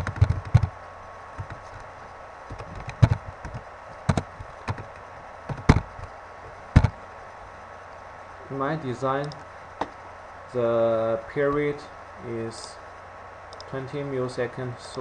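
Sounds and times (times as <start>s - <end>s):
keyboard keystrokes: 0.0s - 0.7s, 2.5s - 5.9s, 6.8s - 7.0s
faint electrical hum: 0.0s - 15.0s.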